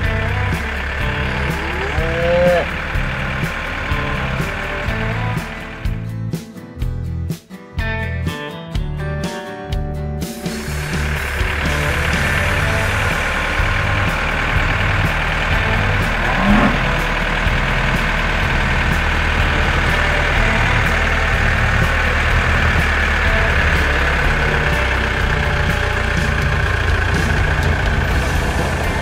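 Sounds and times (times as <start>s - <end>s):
cartoon tractor engine drone: 0.0s - 6.3s, 10.4s - 29.0s
brief rising sound: 16.1s - 17.2s.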